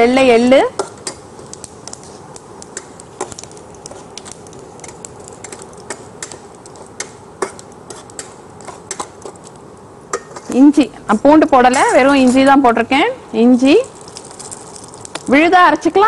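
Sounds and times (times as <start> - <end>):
seeds crackling in oil: 0.0 - 16.0
spoon stirring in pan: 0.7 - 10.6.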